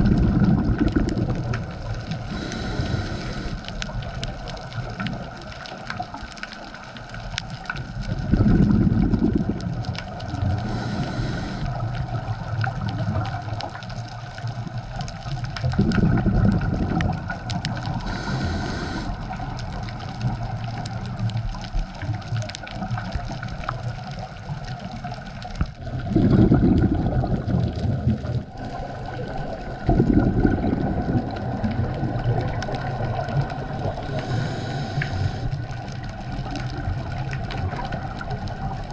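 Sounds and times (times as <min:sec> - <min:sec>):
gurgling exhaled bubbles: 0:00.0 - 0:38.9
regulator inhalation hiss: 0:02.3 - 0:03.7, 0:10.6 - 0:11.8, 0:18.0 - 0:19.3, 0:34.1 - 0:35.6.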